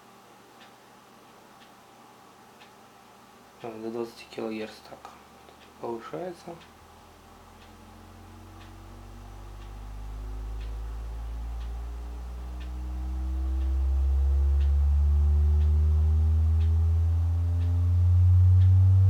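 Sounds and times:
faint tick: 0:00.6 - 0:01.8, 0:07.6 - 0:07.8, 0:08.5 - 0:08.8, 0:09.5 - 0:09.8, 0:10.4 - 0:10.8, 0:11.6 - 0:11.8, 0:12.6 - 0:12.8, 0:13.5 - 0:14.9, 0:16.6 - 0:16.8, 0:18.6 - 0:18.8
rising sine wave test tone: 0:07.1 - 0:19.0.

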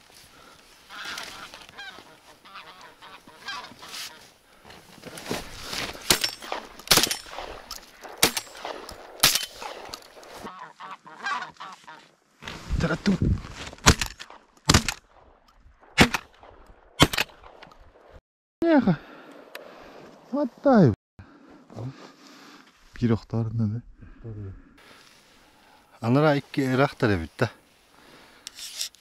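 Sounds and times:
geese honking: 0:00.8 - 0:04.3, 0:10.3 - 0:12.1
shotgun shots: 0:06.1 - 0:10.4, 0:13.8 - 0:15.2, 0:15.8 - 0:17.6.

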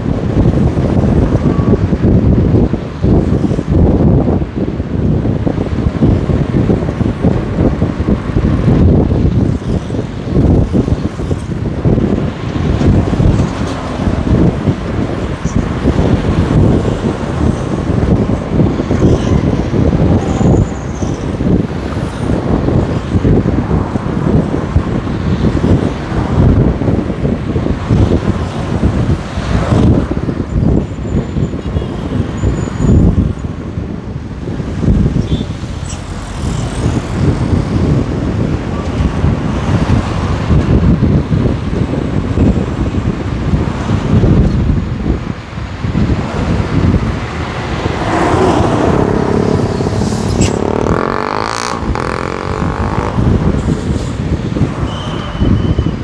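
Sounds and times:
road traffic noise: 0:00.0 - 0:56.0
wind buffeting microphone: 0:00.0 - 0:56.0
vehicle passing: 0:46.1 - 0:53.9.

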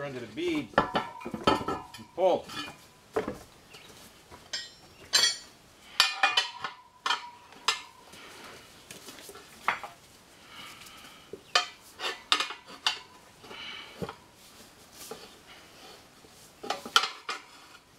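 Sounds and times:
tire irons clinking on rim: 0:04.5 - 0:08.0.

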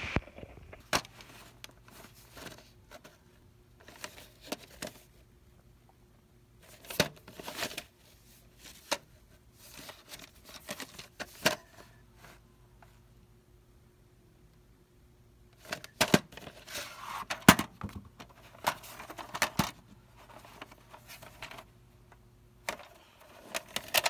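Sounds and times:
tape sleeve clicks and rustles: 0:22.6 - 0:24.0.

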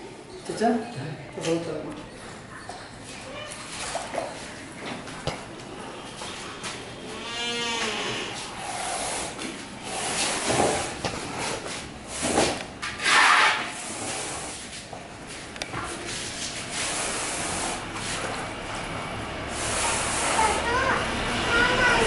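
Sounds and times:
animal bleating: 0:07.1 - 0:08.4
plaster scraping and rubbing: 0:08.5 - 0:14.9.

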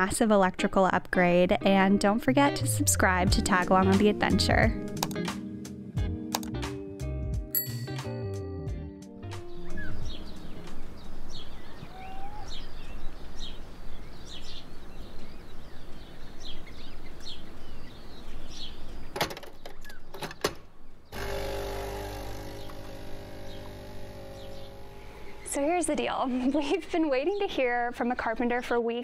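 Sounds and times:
sharp clicks: 0:05.0 - 0:05.3, 0:06.3 - 0:06.6
birds chirping: 0:09.2 - 0:28.7
outdoor hiss: 0:20.8 - 0:25.6
espresso machine pump humming: 0:21.2 - 0:25.6.

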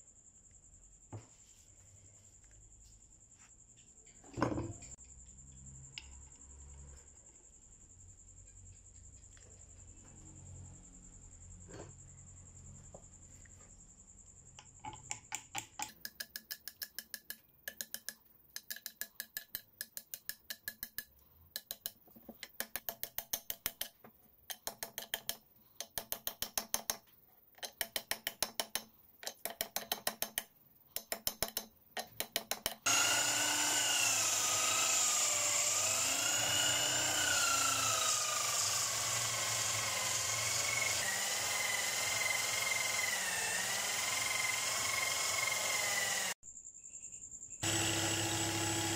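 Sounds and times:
electric bench motor whining: 0:32.9 - 0:46.4, 0:47.6 - 0:48.9.

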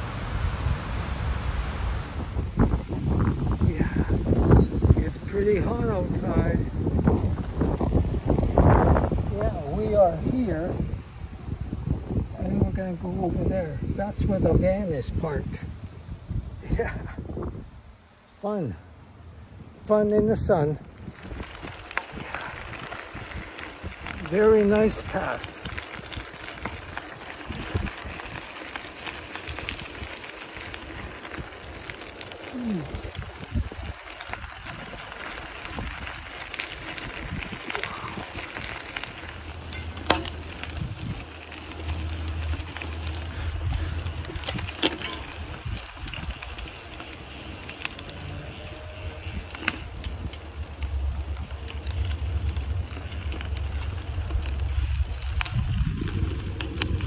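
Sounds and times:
wind buffeting microphone: 0:00.0 - 0:18.0, 0:19.0 - 0:57.0
bicycle tyres rolling on dirt: 0:00.0 - 0:57.0
small clicks and rattles: 0:21.0 - 0:48.4.

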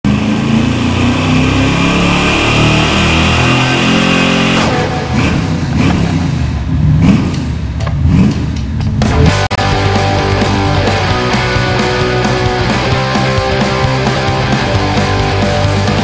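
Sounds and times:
car engine revving on dyno: 0:00.0 - 0:08.6.

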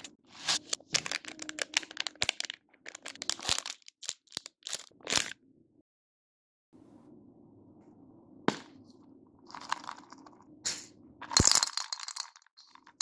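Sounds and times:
candies rattling in bottle: 0:00.3 - 0:05.3, 0:09.5 - 0:10.4, 0:11.2 - 0:13.0
candies clattering into glass bowl: 0:00.4 - 0:05.3, 0:11.2 - 0:13.0.

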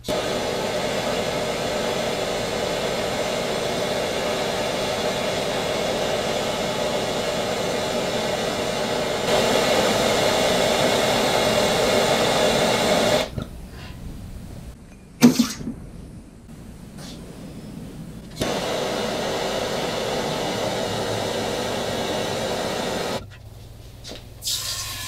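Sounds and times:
torch flame hissing: 0:00.0 - 0:13.4, 0:17.0 - 0:23.2.

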